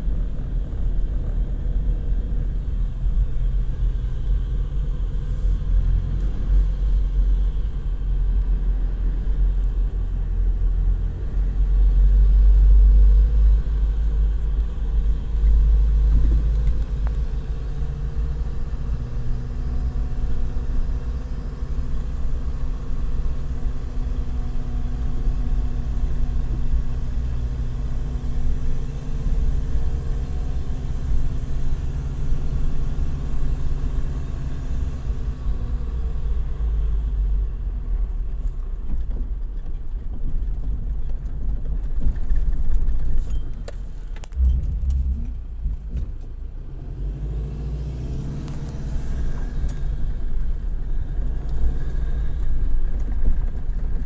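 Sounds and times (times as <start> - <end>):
low rumble: 0.0 - 25.7, 44.0 - 54.0
diesel engine running: 0.0 - 39.4, 44.0 - 54.0.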